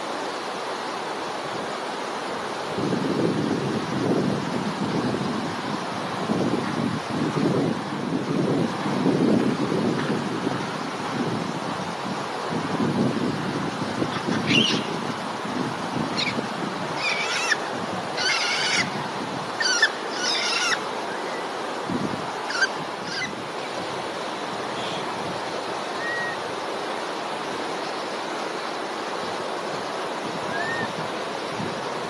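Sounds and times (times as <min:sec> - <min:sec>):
high-pitched animal calls: 0:17.0 - 0:17.6, 0:18.2 - 0:18.9, 0:19.6 - 0:20.8, 0:22.5 - 0:23.3.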